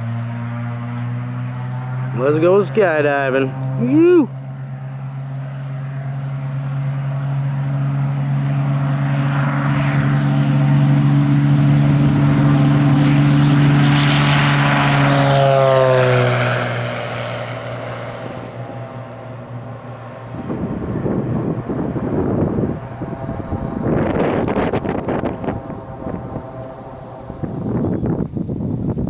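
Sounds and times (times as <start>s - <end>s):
propeller plane engine taking off: 0.0s - 29.0s.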